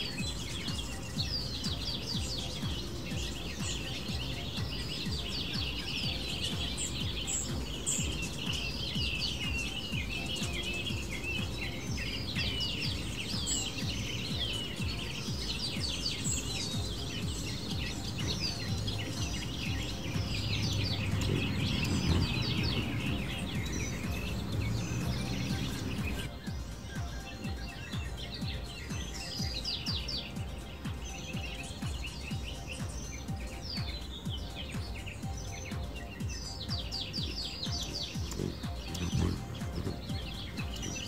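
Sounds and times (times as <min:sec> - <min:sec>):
songbirds chirping: 0:00.0 - 0:41.0
steady low rumble: 0:16.5 - 0:26.4.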